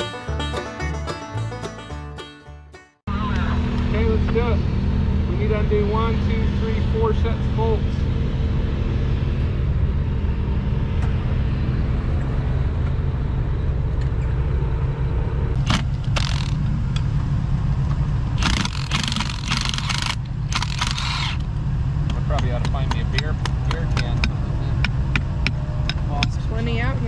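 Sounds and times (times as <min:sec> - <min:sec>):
engine idling: 0:12.0 - 0:27.0.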